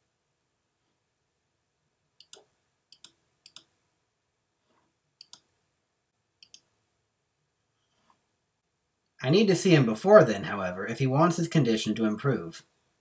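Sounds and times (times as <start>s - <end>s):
computer mouse button clicking: 6.4s - 6.7s.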